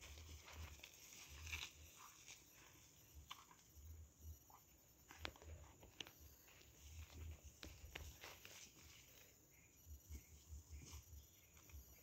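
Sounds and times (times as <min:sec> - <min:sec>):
footsteps through wet grass: 0:00.0 - 0:03.4.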